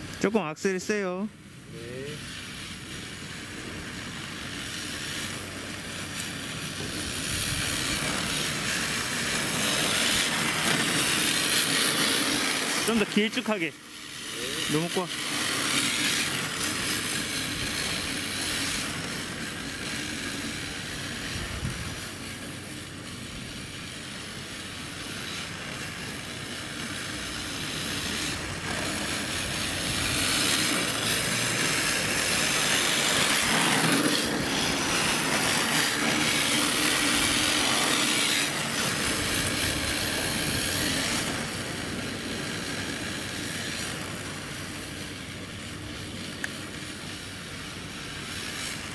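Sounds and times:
tyre hiss on asphalt: 0:00.0 - 0:48.9
toy car motor whine: 0:01.7 - 0:48.9.

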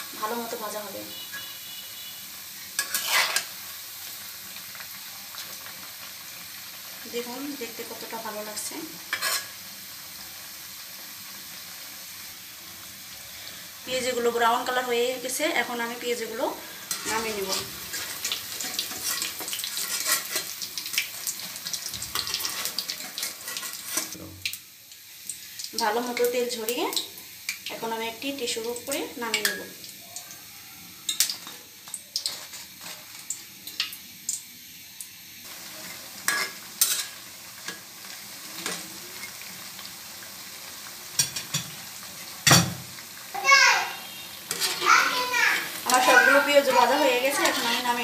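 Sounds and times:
fritters sizzling in oil: 0:00.0 - 0:48.0
metal spatula in pan: 0:01.1 - 0:02.1, 0:02.7 - 0:03.6, 0:09.0 - 0:09.6, 0:16.2 - 0:24.2, 0:29.2 - 0:29.8, 0:31.0 - 0:33.9, 0:35.6 - 0:39.5, 0:41.1 - 0:42.9, 0:44.1 - 0:48.0.

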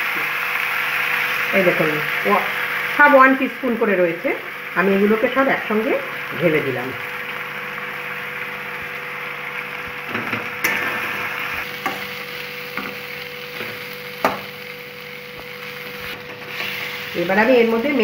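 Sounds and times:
food sizzling in hot oil: 0:00.0 - 0:18.0
metal spatula scraping pan: 0:16.3 - 0:17.1.

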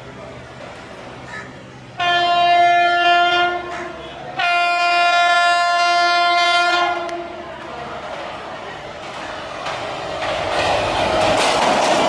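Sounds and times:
locomotive horn blasts: 0:02.0 - 0:07.4.

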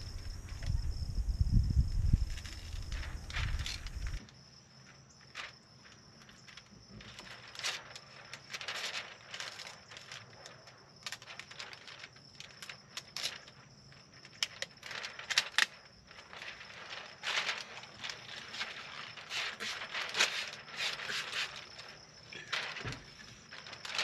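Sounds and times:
sharp crackles: 0:00.0 - 0:04.3, 0:05.2 - 0:24.0
plastic film rustling and crinkling: 0:00.0 - 0:24.0.

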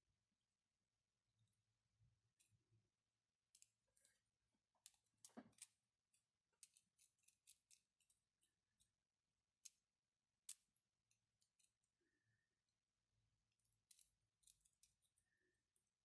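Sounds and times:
plastic parts clicking and clattering: 0:03.5 - 0:09.0, 0:13.5 - 0:16.0.

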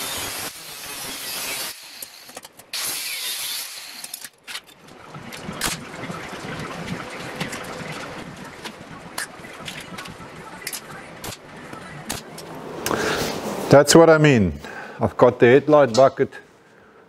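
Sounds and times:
angle grinder cutting steel: 0:00.0 - 0:04.3
welder crackling: 0:00.0 - 0:04.4.

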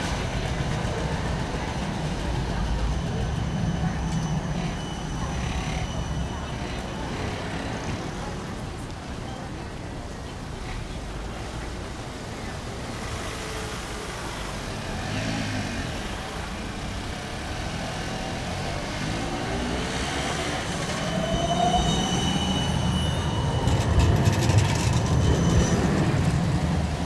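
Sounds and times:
tram motor whine: 0:00.0 - 0:08.8, 0:15.8 - 0:27.0
sharp clicks of passing tram: 0:00.0 - 0:09.2, 0:22.9 - 0:27.0
tram wheel squeal: 0:00.0 - 0:09.7, 0:13.2 - 0:27.0
traffic rumble: 0:00.0 - 0:27.0.

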